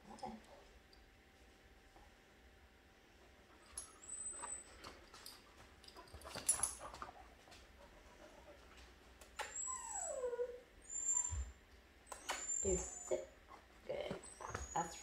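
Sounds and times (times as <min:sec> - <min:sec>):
dog claws clicking and scuffling: 0:04.8 - 0:07.7
young dog whining: 0:09.4 - 0:13.4, 0:14.2 - 0:15.0.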